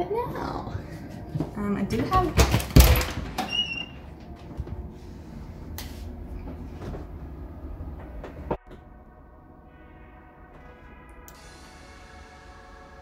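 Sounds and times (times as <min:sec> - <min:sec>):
footsteps: 0:00.9 - 0:02.8
background music: 0:08.6 - 0:13.0.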